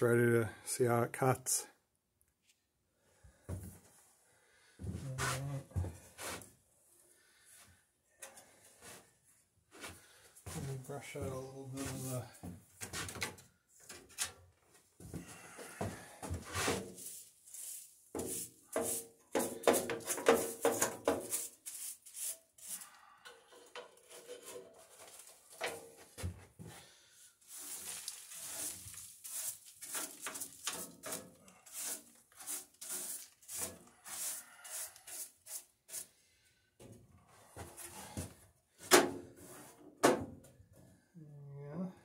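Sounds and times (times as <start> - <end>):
brush scraping and rubbing: 11.7 - 12.2, 16.4 - 23.0, 23.9 - 25.6, 27.3 - 36.2.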